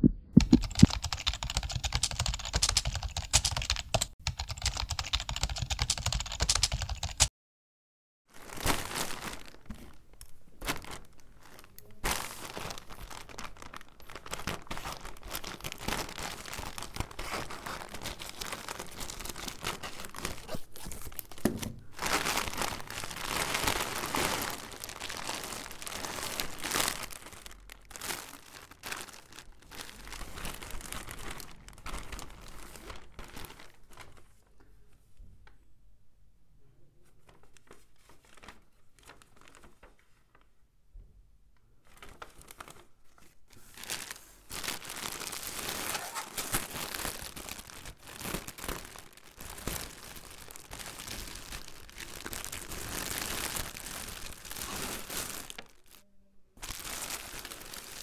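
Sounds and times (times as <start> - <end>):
keyboard typing clicks: 0.0 - 7.3
plastic and tissue paper crinkling: 8.3 - 34.6, 37.0 - 40.6, 41.8 - 56.0, 56.6 - 58.0.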